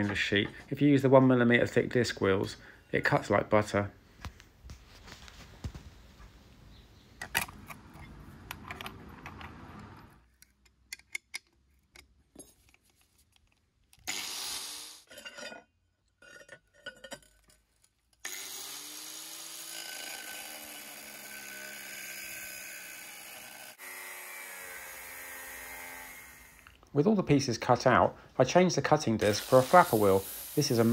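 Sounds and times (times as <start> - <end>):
angle grinder cutting metal: 14.1 - 15.1, 18.2 - 26.8, 29.2 - 30.9.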